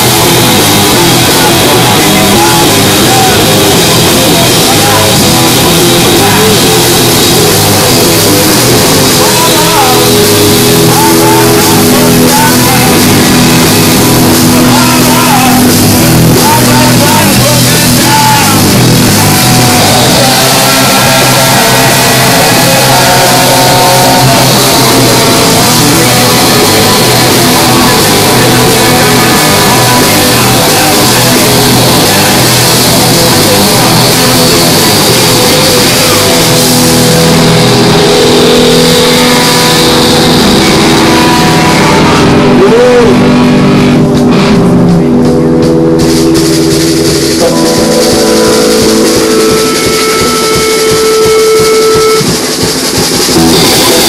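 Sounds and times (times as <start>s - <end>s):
electric guitar: 0.0s - 54.0s
live rock band: 0.0s - 54.0s
saxophone: 46.3s - 54.0s.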